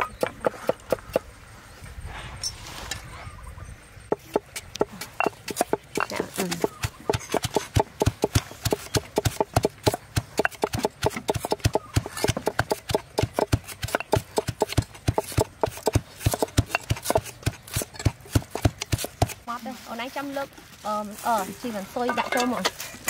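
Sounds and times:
pestle pounding in stone mortar: 4.1 - 19.4.

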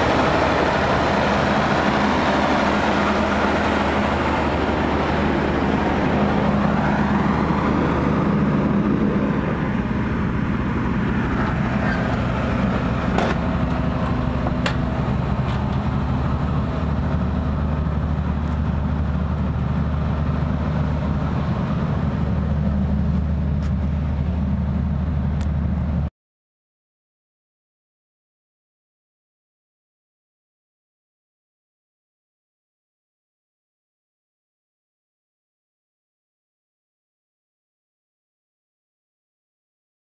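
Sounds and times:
diesel generator drone: 0.0 - 26.1.

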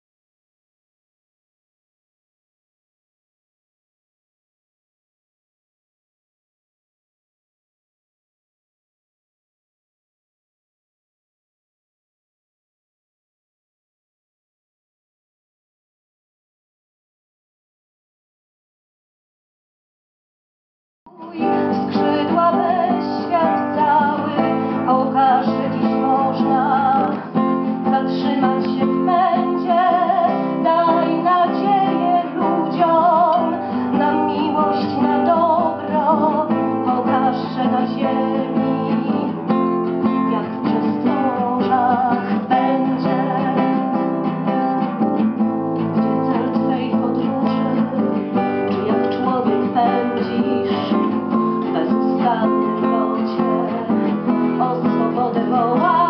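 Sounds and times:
acoustic guitar music: 21.1 - 56.0.

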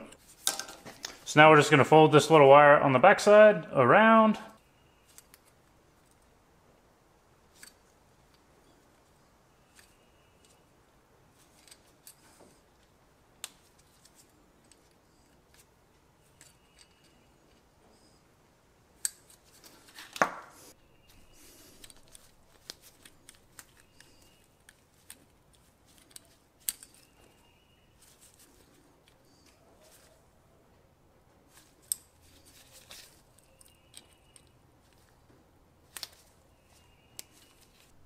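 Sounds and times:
pliers clicking and scraping: 5.0 - 6.2, 7.5 - 8.8, 9.6 - 10.6, 11.4 - 18.1, 19.0 - 20.3, 21.2 - 30.1, 31.5 - 35.2, 35.9 - 38.0.

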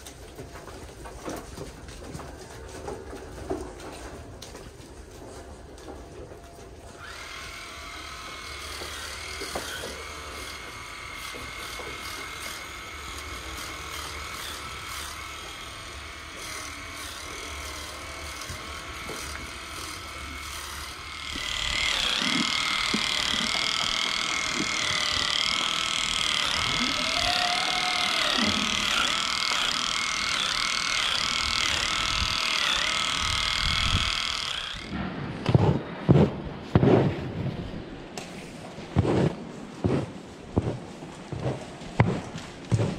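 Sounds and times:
electric clippers whining: 6.9 - 35.0.

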